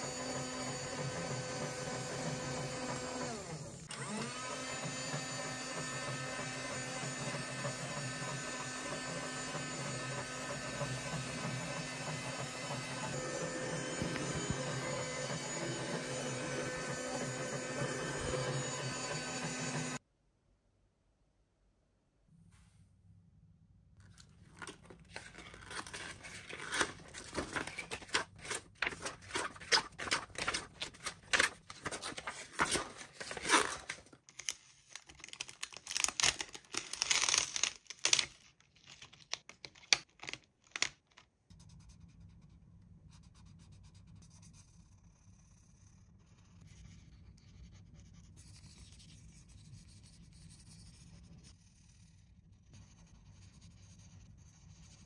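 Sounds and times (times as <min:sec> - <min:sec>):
packaging tearing and crinkling: 0:24.1 - 0:40.9.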